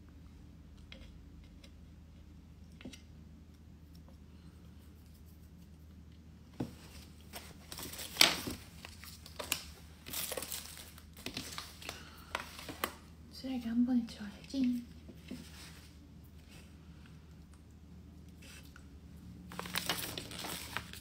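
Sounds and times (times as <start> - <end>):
low room hum: 0.0 - 21.0
packaging crinkling: 7.3 - 13.0, 19.4 - 21.0.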